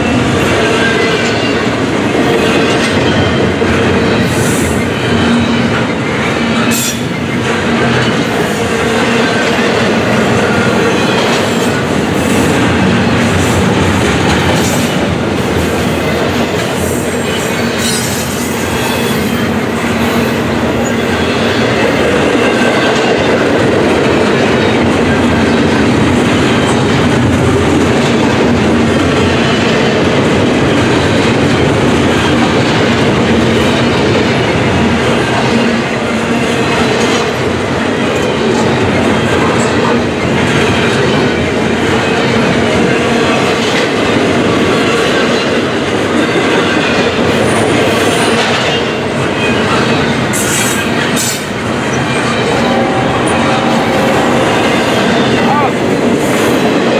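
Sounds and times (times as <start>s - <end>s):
clickety-clack over rail joints: 0.0s - 53.7s
train wheels rumbling on rails: 0.0s - 56.9s
high wheel squeals: 17.2s - 19.6s.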